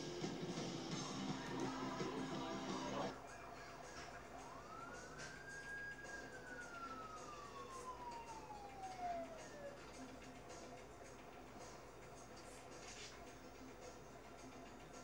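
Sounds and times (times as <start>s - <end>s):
faint siren wail: 1.0s - 10.2s.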